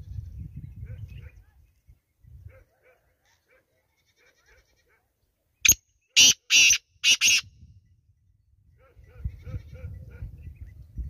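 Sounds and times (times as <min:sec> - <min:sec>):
francolin harsh rasping call: 0:06.2 - 0:07.5.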